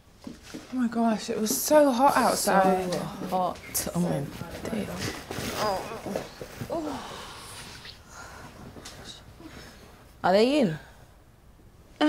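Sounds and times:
soft rustling: 0.2s - 10.2s
woman sighing: 5.6s - 8.4s.

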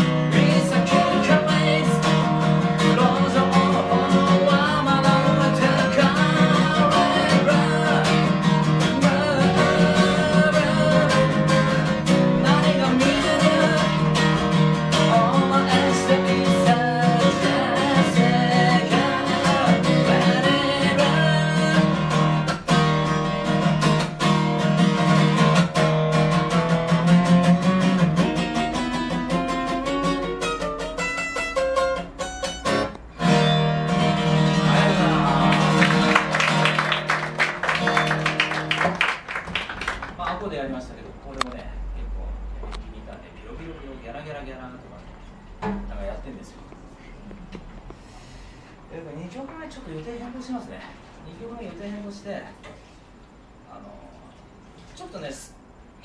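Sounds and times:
man singing: 0.0s - 22.4s, 34.2s - 36.3s
strummed acoustic guitar: 0.0s - 40.2s.

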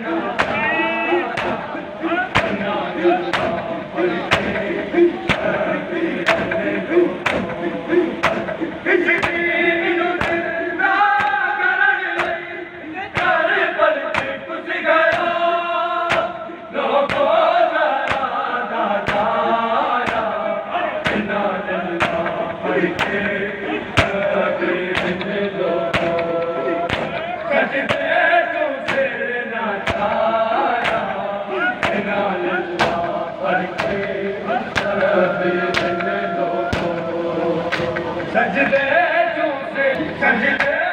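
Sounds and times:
men chanting together: 0.0s - 40.9s
hands slapping chests: 8.2s - 8.5s, 14.1s - 14.4s, 16.1s - 16.3s, 18.1s - 18.3s, 20.0s - 20.3s, 23.0s - 23.2s, 25.9s - 27.3s, 28.9s - 29.1s, 29.8s - 30.1s, 30.8s - 31.1s, 31.8s - 32.0s, 33.8s - 34.1s, 34.8s - 35.1s, 35.7s - 36.1s, 37.7s - 38.0s.

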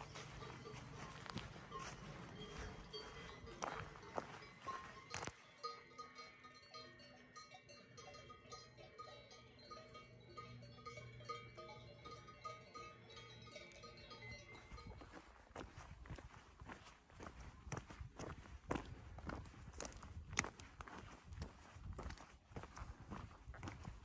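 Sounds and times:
footsteps: 0.0s - 5.4s, 13.6s - 24.0s
cowbells clanking: 0.0s - 16.4s.

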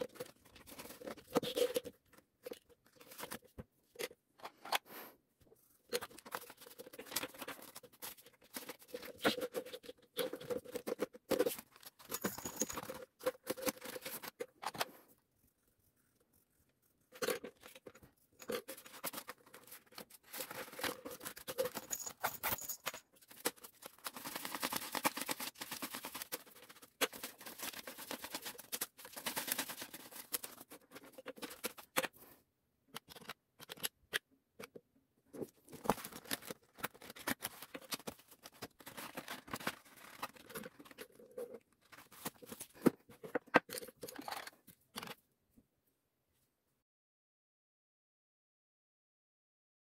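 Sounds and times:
banknotes rustling: 17.6s - 31.9s
plastic sleeves crackling: 23.1s - 32.0s, 35.4s - 43.0s.

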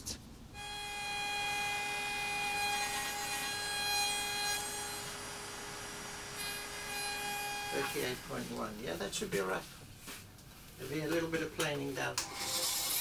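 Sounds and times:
power tool whining: 0.6s - 8.4s.

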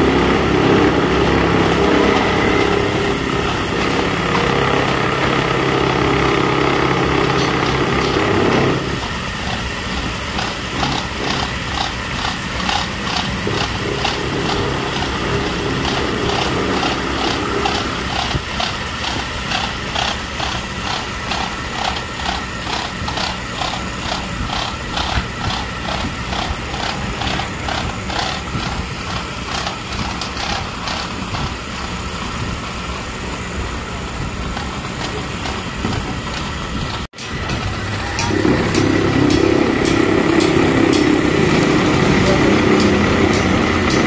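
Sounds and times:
metal lathe running: 0.0s - 44.0s
regular ticking: 9.4s - 32.0s.

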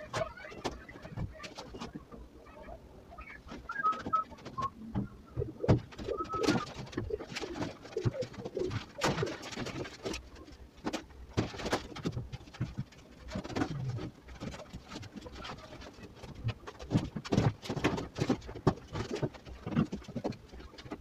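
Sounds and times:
doves cooing: 0.0s - 10.2s.

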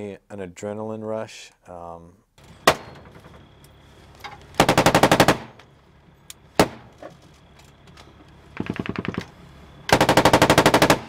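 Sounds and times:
automatic weapon fire: 4.6s - 5.6s, 9.9s - 11.0s.

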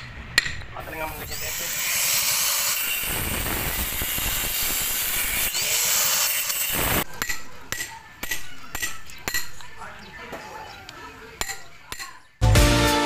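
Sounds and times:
hammer striking steel chisel: 0.0s - 0.7s, 6.5s - 9.6s
angle grinder cutting concrete: 0.9s - 7.1s.

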